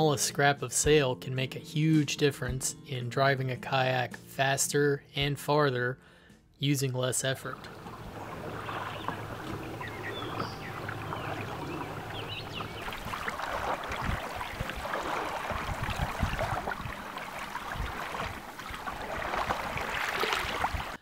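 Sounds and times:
water splashing along hull: 7.5s - 21.0s
wind buffeting microphone: 7.6s - 21.0s.

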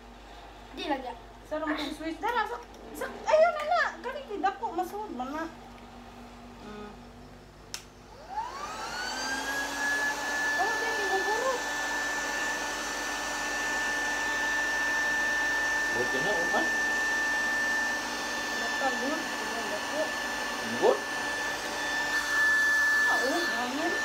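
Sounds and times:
air pump motor whine: 8.0s - 24.0s.

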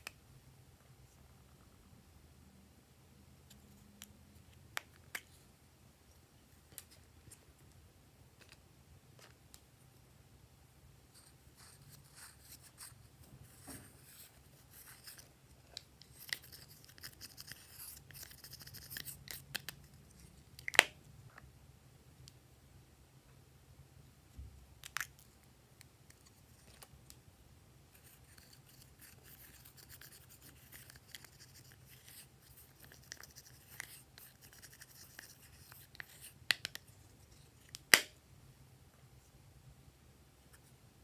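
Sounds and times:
cotton swab scratching powder: 11.1s - 20.4s, 27.9s - 38.0s.

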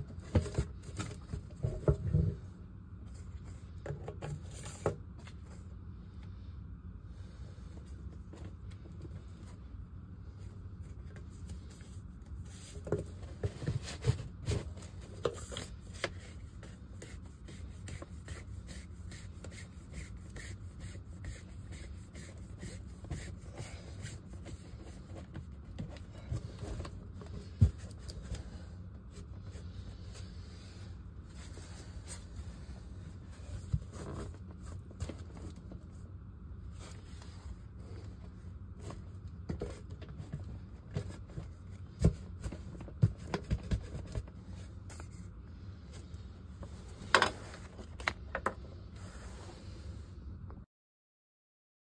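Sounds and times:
scraping and rubbing on plastic pipe: 0.0s - 2.5s, 10.8s - 36.0s
steady low hum: 0.0s - 50.7s.

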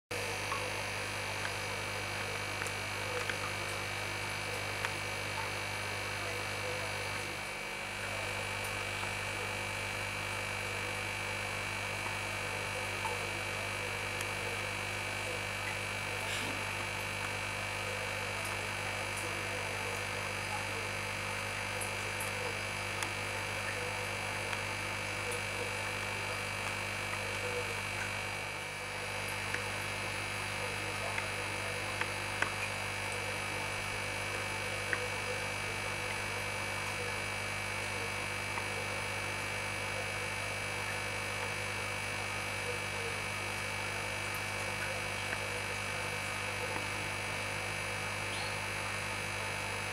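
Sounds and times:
electrical mains hum: 0.1s - 49.9s.

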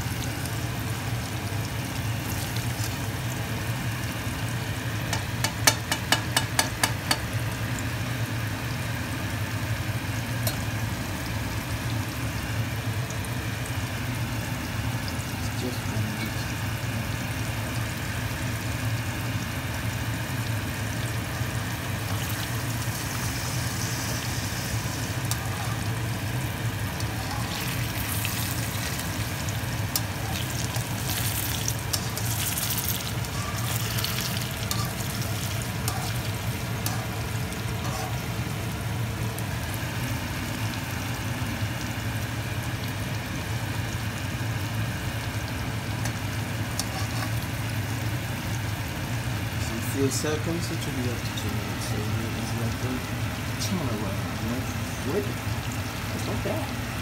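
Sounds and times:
oil crackling: 0.0s - 7.8s, 20.3s - 42.4s
food sizzling in hot oil: 0.0s - 57.0s.

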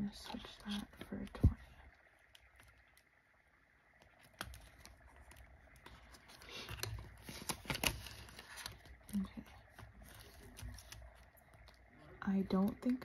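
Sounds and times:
plastic pouch crinkling: 4.0s - 11.9s
banknotes being handled: 4.2s - 11.9s.

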